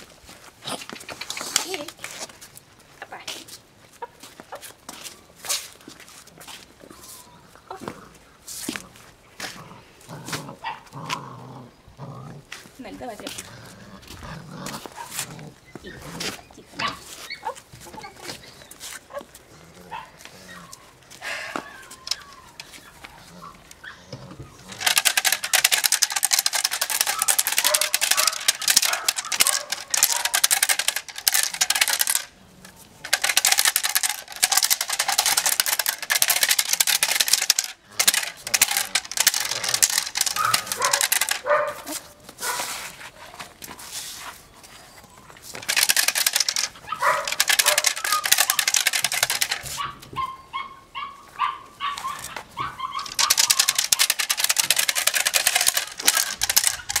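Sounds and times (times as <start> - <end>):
puppy growling: 9.4 - 12.7, 13.3 - 17.6, 37.8 - 41.0.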